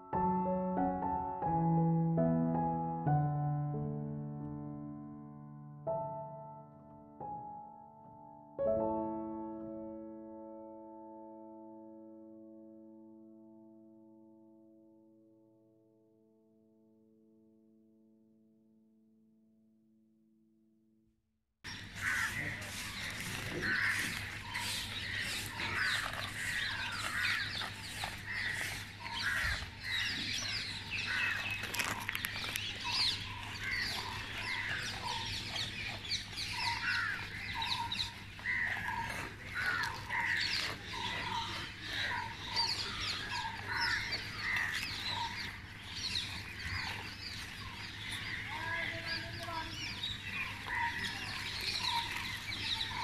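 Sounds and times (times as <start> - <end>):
crows cawing: 21.7 - 53.0
many birds calling: 21.7 - 53.0.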